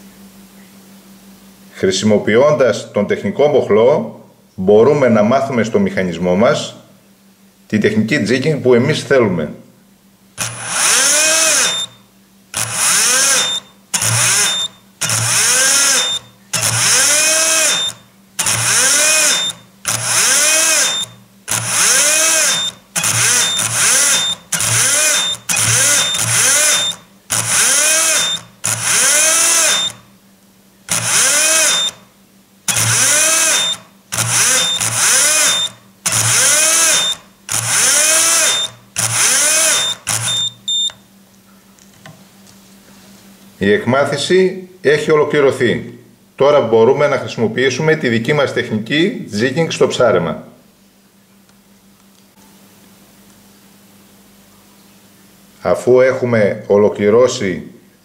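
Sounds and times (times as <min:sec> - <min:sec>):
electric fishing reel motor whine: 0:10.4 - 0:30.0, 0:30.9 - 0:32.0, 0:32.7 - 0:40.5
short high beeps: 0:39.8 - 0:41.0.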